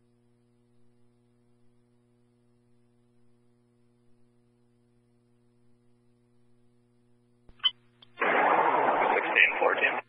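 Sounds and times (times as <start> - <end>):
faint radio hum and hiss: 0.0 - 10.0.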